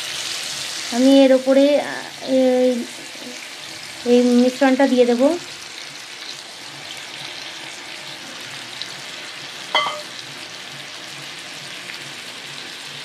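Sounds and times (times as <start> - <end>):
eggs sizzling in oil: 0.0 - 13.0
short clink: 9.8 - 10.1.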